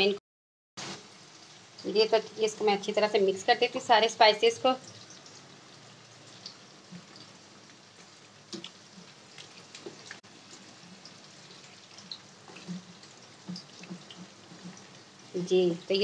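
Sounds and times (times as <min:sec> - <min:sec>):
hand mixing meat wet squelches: 0:06.4 - 0:15.2.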